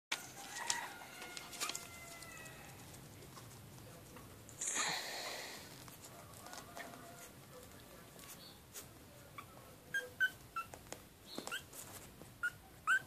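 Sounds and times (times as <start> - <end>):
rustling: 0.1 - 12.6
puppies whimpering: 9.3 - 10.8, 12.4 - 13.0.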